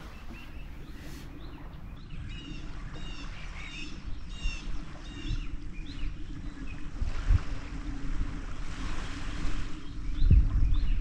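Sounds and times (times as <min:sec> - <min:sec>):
songbird chirping: 0:00.0 - 0:06.9
low background rumble: 0:00.0 - 0:11.0.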